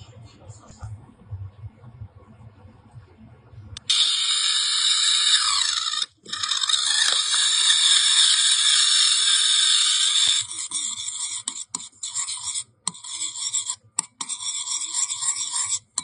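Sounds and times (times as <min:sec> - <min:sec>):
electric pepper grinder whirring: 0:03.8 - 0:13.2.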